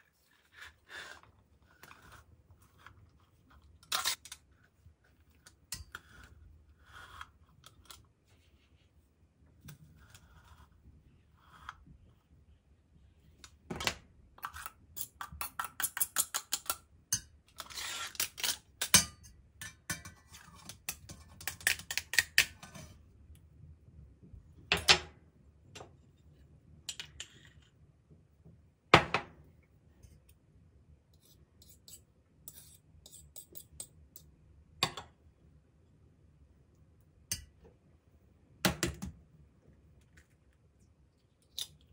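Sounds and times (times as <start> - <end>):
spoon clinking and scraping pan: 18.9 - 21.2.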